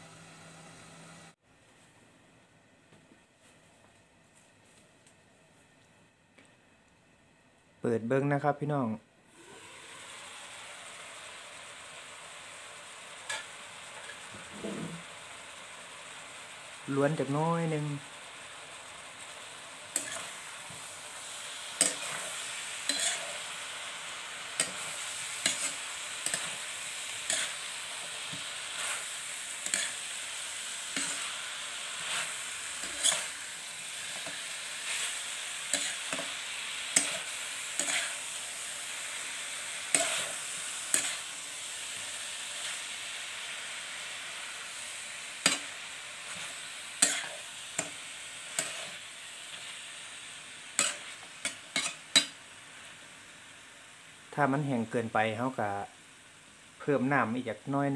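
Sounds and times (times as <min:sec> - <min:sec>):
chicken sizzling in a wok: 0:09.3 - 0:57.9
metal spatula scraping a pan: 0:19.9 - 0:20.4, 0:21.7 - 0:23.6, 0:24.6 - 0:30.1, 0:30.9 - 0:33.4, 0:34.0 - 0:38.4, 0:39.9 - 0:41.3, 0:46.3 - 0:49.0, 0:50.8 - 0:52.4.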